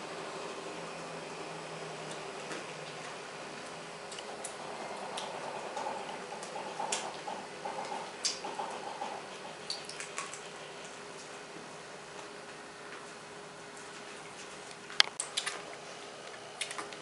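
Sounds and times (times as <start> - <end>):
room hiss: 0.0 - 14.6.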